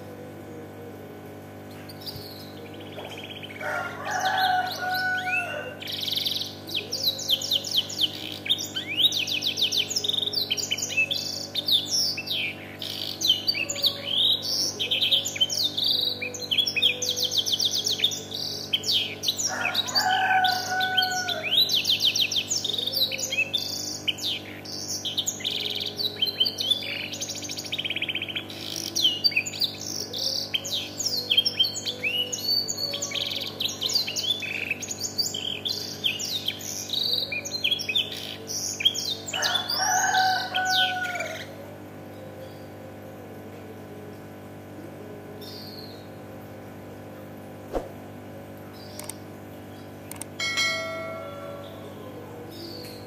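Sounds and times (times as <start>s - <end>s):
canary singing trills and chirps: 1.7s - 41.6s.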